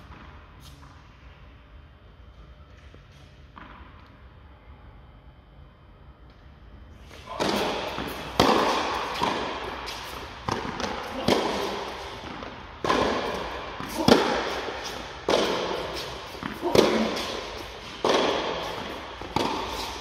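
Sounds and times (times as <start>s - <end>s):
racquets striking tennis ball: 7.1s - 20.0s
tennis ball bouncing on court: 7.4s - 20.0s.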